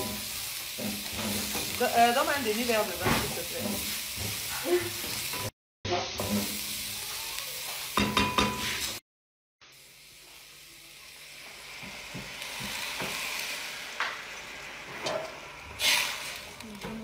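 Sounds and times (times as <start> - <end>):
spoon scraping a pan: 0.0 - 2.0, 2.6 - 5.5
onions sizzling in a pan: 0.0 - 9.0, 9.6 - 17.0.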